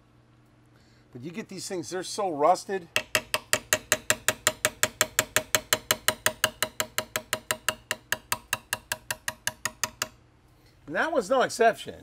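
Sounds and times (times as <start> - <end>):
hammer tapping on steel punch: 2.9 - 10.2.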